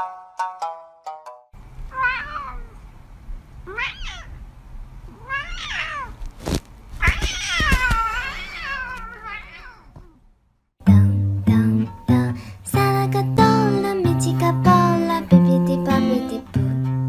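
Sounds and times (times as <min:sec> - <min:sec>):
cat meowing: 0:01.9 - 0:02.8, 0:03.6 - 0:04.4, 0:05.1 - 0:06.2, 0:07.0 - 0:10.2.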